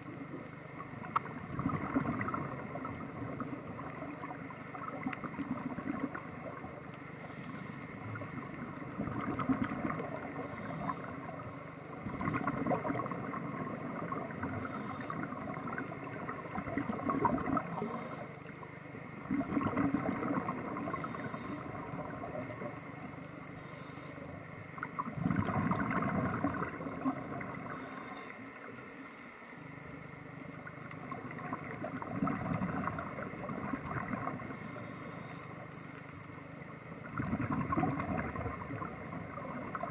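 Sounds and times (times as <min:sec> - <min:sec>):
exhaled bubbles rushing: 0:00.9 - 0:06.2, 0:08.2 - 0:10.4, 0:12.0 - 0:17.8, 0:19.2 - 0:21.1, 0:24.8 - 0:27.7, 0:31.0 - 0:34.5, 0:37.0 - 0:39.9
hissing regulator inhalations: 0:07.2 - 0:08.0, 0:10.4 - 0:12.5, 0:14.5 - 0:15.3, 0:16.9 - 0:18.4, 0:20.9 - 0:21.8, 0:23.0 - 0:24.4, 0:27.7 - 0:29.8, 0:34.5 - 0:36.3.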